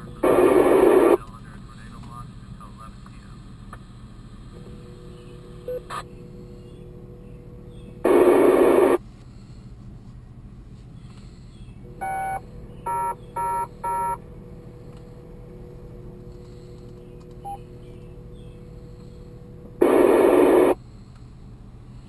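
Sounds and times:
loud radio static: 0:00.0 - 0:03.4, 0:08.0 - 0:09.0, 0:19.8 - 0:20.8
short beeping tones: 0:12.0 - 0:14.2, 0:17.4 - 0:17.7.

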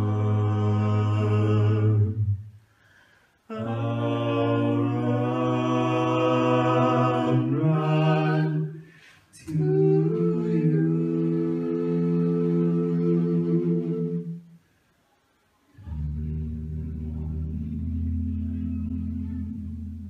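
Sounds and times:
music of long sung chords: 0:00.0 - 0:02.3, 0:15.8 - 0:20.0.

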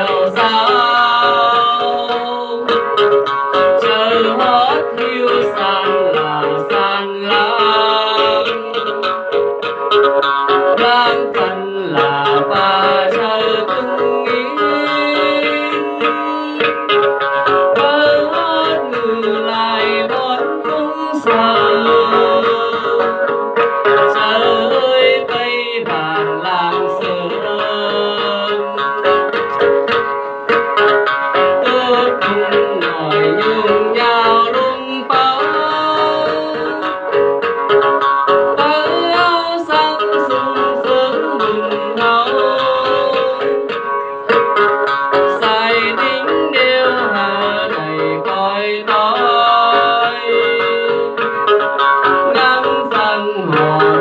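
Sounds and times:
dance music with plucked strings: 0:00.0 - 0:54.0.

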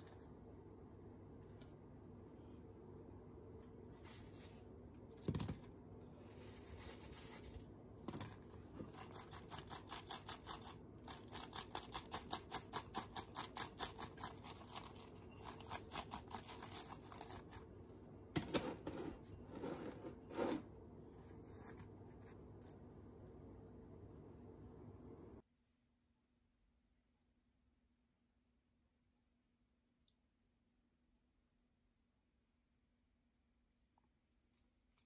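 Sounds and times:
gritty scrapes against glass bowl: 0:18.8 - 0:20.7.

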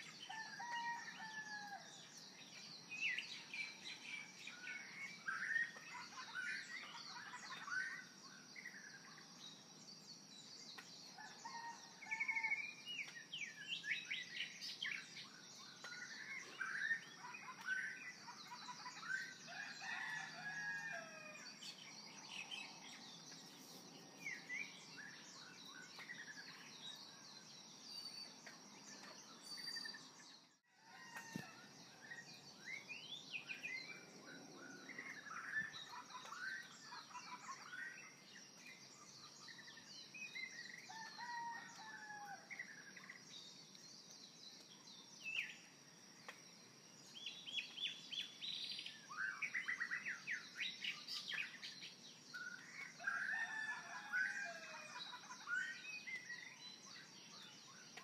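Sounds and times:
birds chirping and singing: 0:00.0 - 0:46.4, 0:47.0 - 0:58.0.

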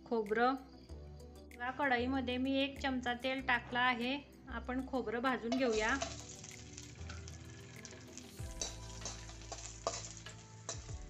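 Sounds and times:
coconut sizzling in hot oil: 0:05.3 - 0:11.0
spatula tapping pan: 0:05.5 - 0:06.6, 0:08.4 - 0:11.0
spatula stirring: 0:05.5 - 0:11.0.

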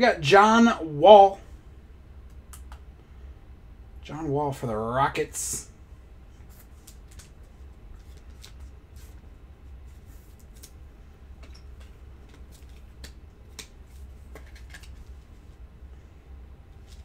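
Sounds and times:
steady low hum: 0:00.0 - 0:17.0
soft plastic rustles: 0:06.3 - 0:15.7, 0:16.7 - 0:17.0.

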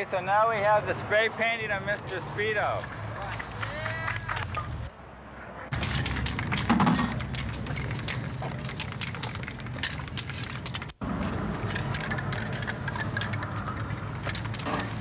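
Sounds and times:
crackling clicks: 0:05.7 - 0:15.0
spray-paint cans hissing: 0:05.8 - 0:15.0.

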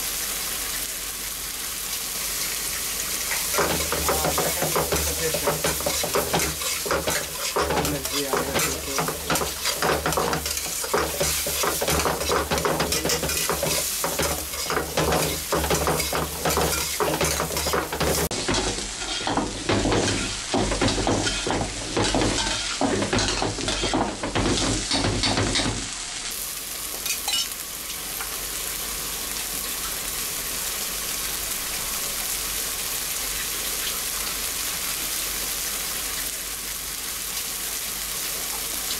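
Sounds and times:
vegetables sizzling in oil: 0:00.0 - 0:38.9
metal spatula scraping a pan: 0:03.3 - 0:25.7.

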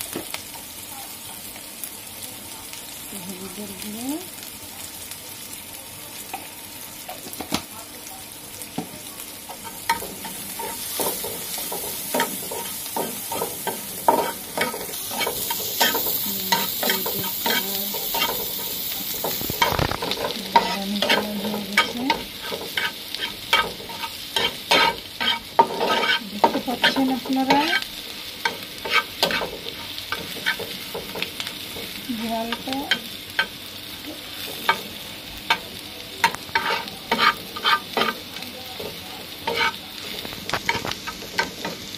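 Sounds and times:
frying pan sizzling: 0:00.0 - 0:41.9
spatula scraping frying pan: 0:09.5 - 0:33.6, 0:34.4 - 0:41.9.

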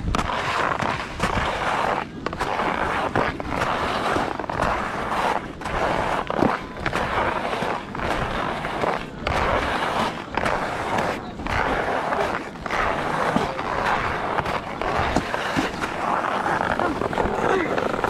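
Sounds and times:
skis scraping over snow: 0:00.0 - 0:18.0.

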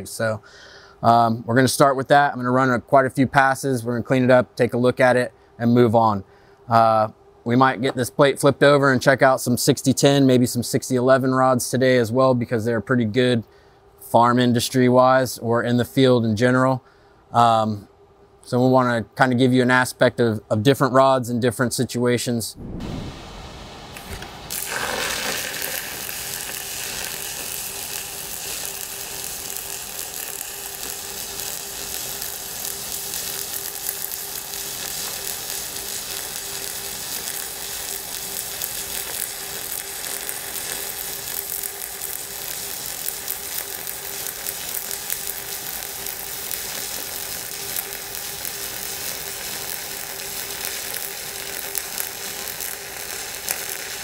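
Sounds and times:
welding arc crackling sizzle: 0:22.6 - 0:54.0.

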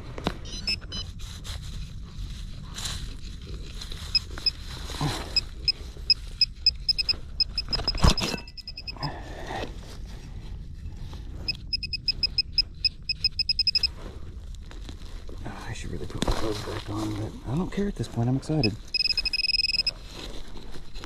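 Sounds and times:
metal detector pinpointer beeping: 0:00.5 - 0:01.1, 0:05.4 - 0:09.1, 0:11.5 - 0:13.9, 0:18.6 - 0:20.0.

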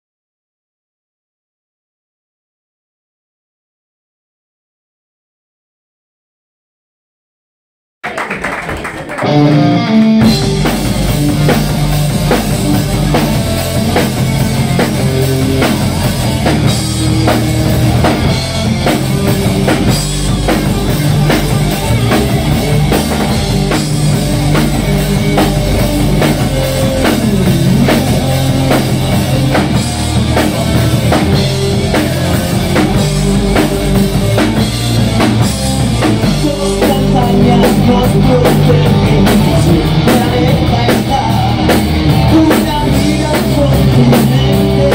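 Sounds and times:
electric guitars: 0:08.8 - 0:44.9
bass guitar: 0:09.1 - 0:44.9
drum kit beat: 0:09.2 - 0:44.9.

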